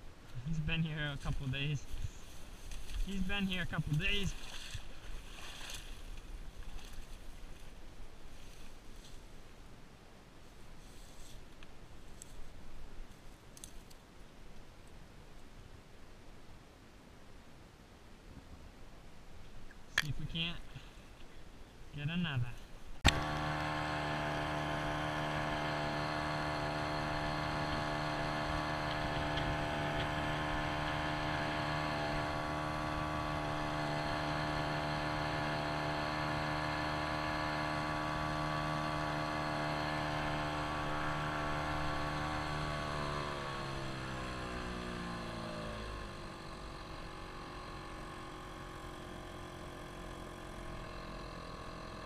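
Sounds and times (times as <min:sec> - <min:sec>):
outboard motor droning: 0:02.5 - 0:06.0, 0:23.0 - 0:52.0.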